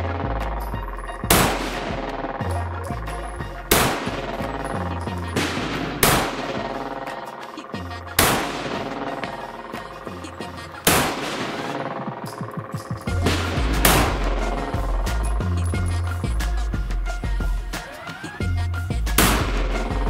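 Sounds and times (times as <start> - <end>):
background music with bass: 0.0 - 20.0
handgun shots: 1.3 - 2.4, 3.7 - 7.2, 8.2 - 9.4, 10.8 - 12.5, 13.2 - 14.8, 19.2 - 19.9.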